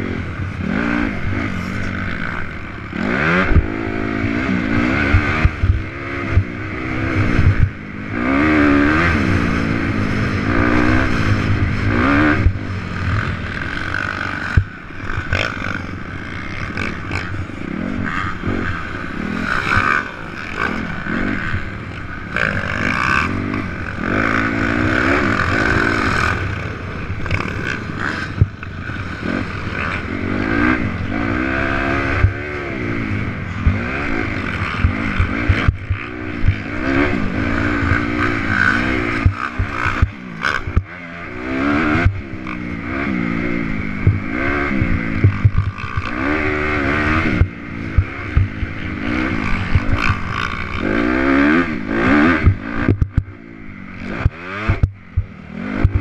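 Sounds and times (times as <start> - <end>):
motorcycle engine revving: 0.0 - 56.0
sharp knocks over bumps: 52.3 - 53.3.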